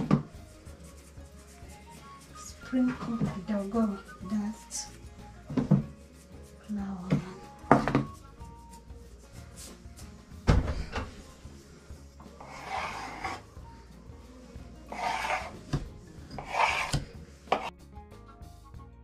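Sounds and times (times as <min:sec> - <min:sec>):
faint background music: 0:00.0 - 0:19.0
knife scraping along tabletop: 0:12.2 - 0:13.5, 0:14.9 - 0:17.7.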